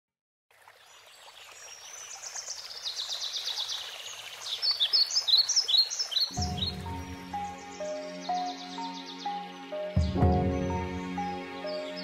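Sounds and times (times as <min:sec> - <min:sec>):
birds chirping: 0:01.1 - 0:12.0
music with low held notes: 0:06.4 - 0:12.0.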